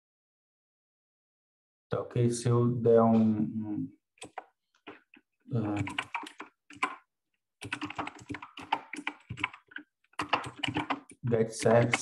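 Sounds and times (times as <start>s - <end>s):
typing on computer keyboard: 4.2s - 7.0s, 7.6s - 12.0s.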